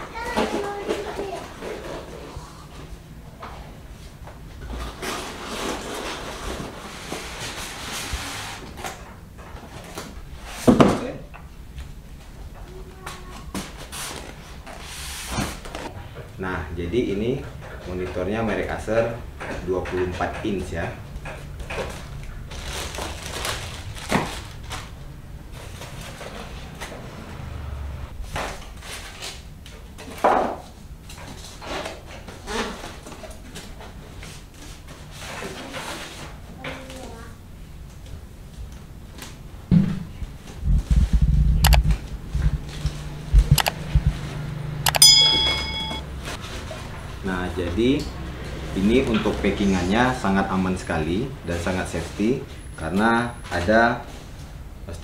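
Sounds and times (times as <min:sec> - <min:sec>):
styrofoam and plastic rustling: 0:21.9 - 0:26.6.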